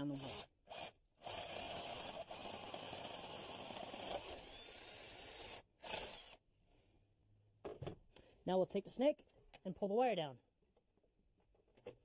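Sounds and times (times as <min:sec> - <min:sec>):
power drill boring through wood: 0:00.0 - 0:06.4.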